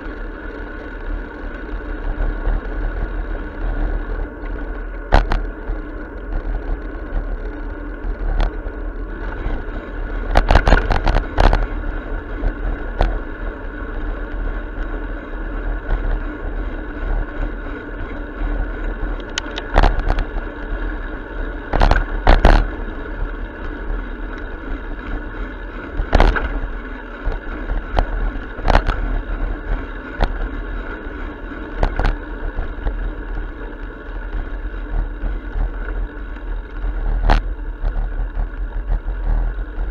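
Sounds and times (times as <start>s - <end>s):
bicycle tyres rumbling on pavement: 0.0s - 39.9s
bicycle knocks and rattles: 3.6s - 15.0s, 19.1s - 20.8s, 21.5s - 39.9s.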